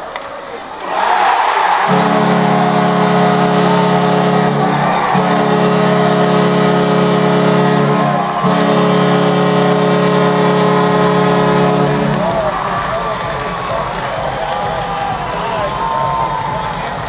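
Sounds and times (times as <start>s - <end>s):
goal horn blasts: 1.7s - 13.0s.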